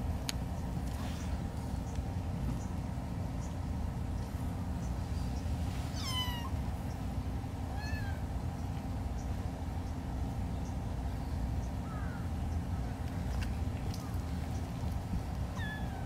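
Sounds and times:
kitten meowing: 6.0s - 6.5s.

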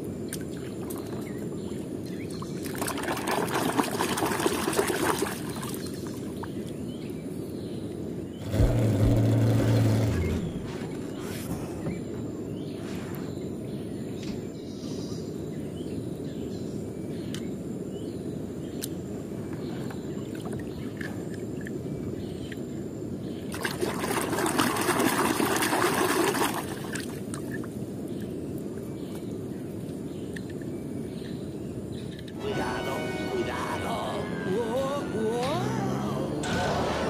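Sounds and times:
water sloshing in a plastic tub: 0.3s - 6.6s, 23.5s - 27.7s
water splashing: 2.6s - 6.4s, 23.5s - 27.6s.

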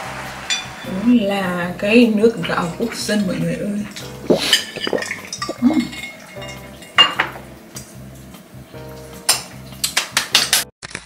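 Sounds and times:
background music: 0.0s - 10.7s
spoon and glass clinking: 4.0s - 7.6s
hand claps: 9.8s - 10.6s.

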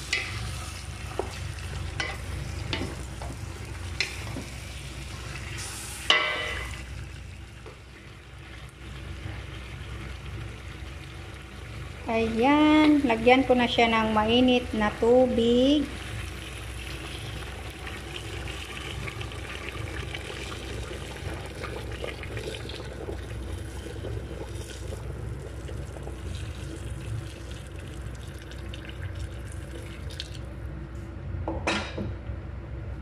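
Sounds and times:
water pouring into pot: 15.9s - 30.5s.

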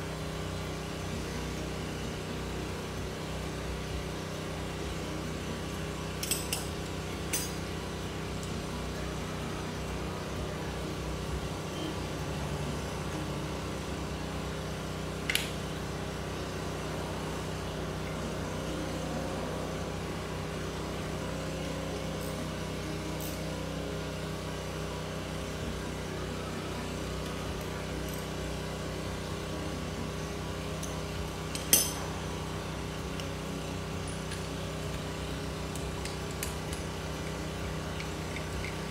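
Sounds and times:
steady low hum: 0.0s - 38.9s
metal hand tools clinking: 31.5s - 32.1s.

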